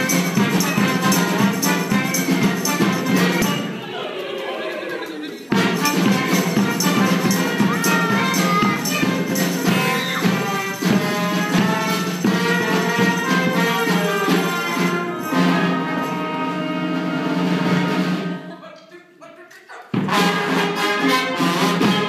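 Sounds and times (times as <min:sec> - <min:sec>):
live band music: 0:00.0 - 0:18.7, 0:19.8 - 0:22.0
percussion beats: 0:00.0 - 0:22.0.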